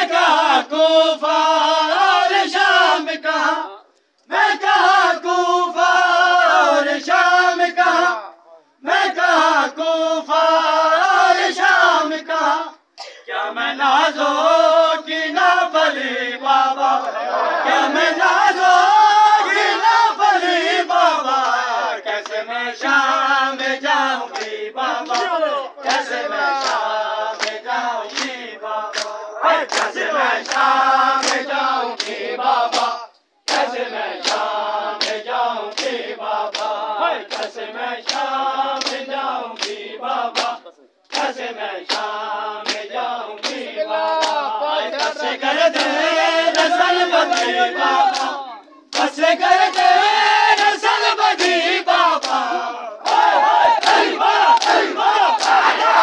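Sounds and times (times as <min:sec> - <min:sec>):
men chanting in chorus: 0:00.0 - 0:56.0.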